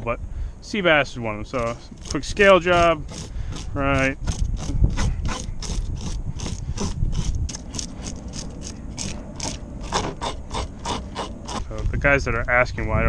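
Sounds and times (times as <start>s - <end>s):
fish scaler scraping scales: 1.5s - 11.8s.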